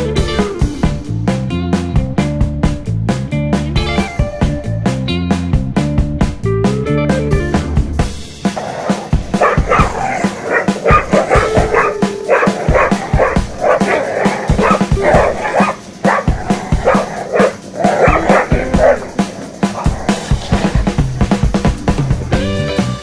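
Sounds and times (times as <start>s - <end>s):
background music with steady beat: 0.0s - 23.0s
dogs barking and yipping: 8.5s - 22.0s.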